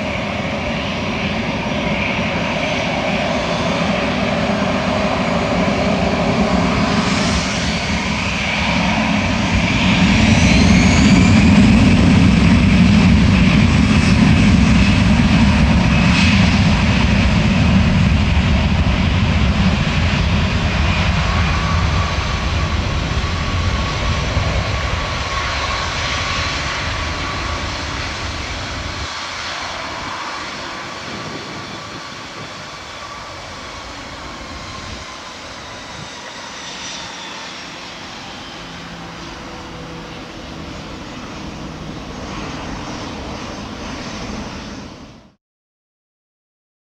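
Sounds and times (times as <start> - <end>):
jet engines at takeoff: 0.0 - 45.4.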